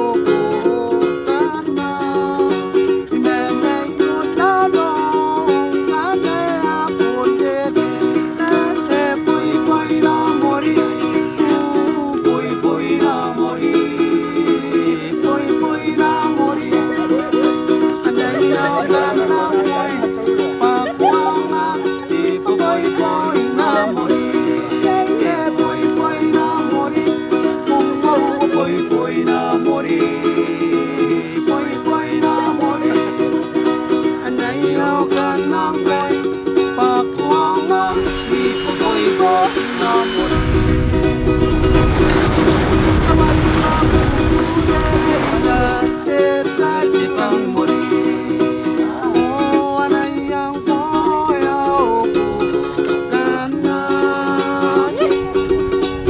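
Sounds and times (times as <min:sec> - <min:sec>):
strummed ukulele chords: 0:00.0 - 0:56.0
wavering melody line: 0:16.2 - 0:25.2.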